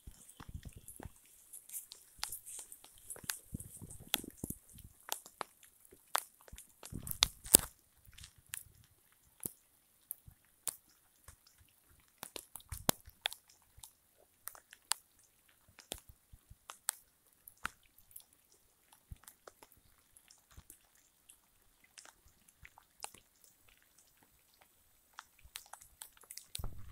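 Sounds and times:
raindrops tapping: 0.0 - 8.7.

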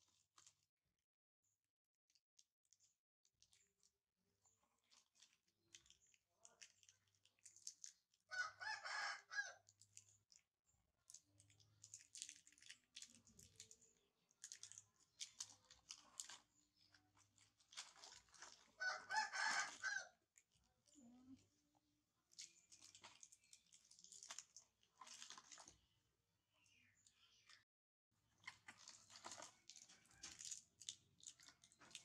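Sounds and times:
plastic wrappers crinkling: 28.5 - 32.0.

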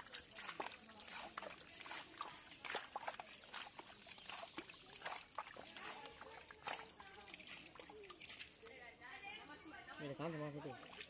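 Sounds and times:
muddy water trickling and sloshing: 0.0 - 11.0
small splashes and clicks: 0.0 - 11.0.

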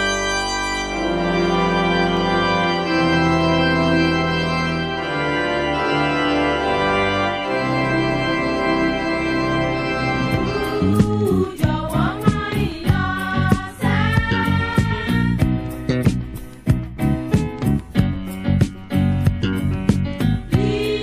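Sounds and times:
church organ chords: 0.0 - 14.0.

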